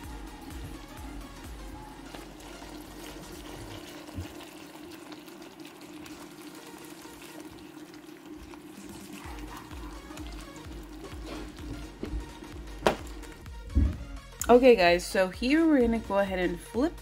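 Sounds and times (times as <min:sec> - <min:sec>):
sauce simmering and bubbling: 0:00.4 - 0:13.7.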